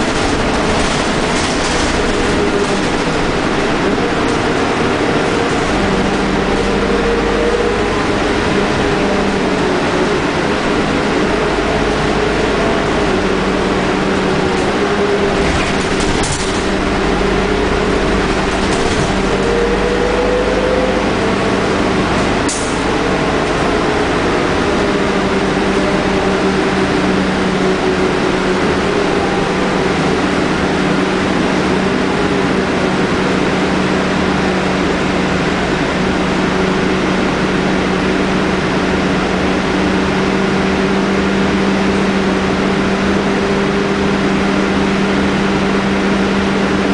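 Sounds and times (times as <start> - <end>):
bus engine humming: 0.0 - 46.9
sharp rattles: 15.3 - 17.2.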